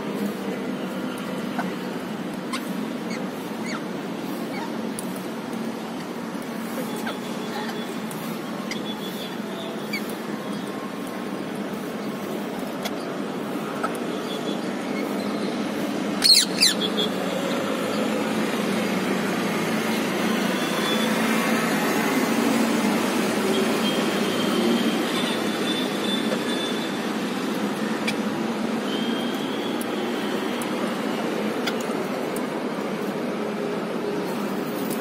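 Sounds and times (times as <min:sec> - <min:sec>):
city traffic din: 0:00.0 - 0:35.0.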